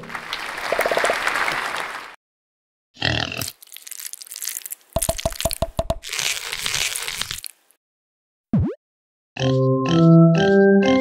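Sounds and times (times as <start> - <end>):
crackling crunching noise: 0.1 - 2.2, 3.4 - 7.8.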